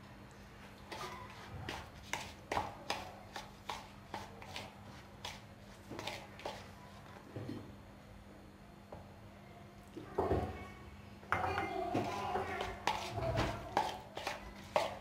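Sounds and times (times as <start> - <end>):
spoon scraping a bowl: 12.0 - 15.0.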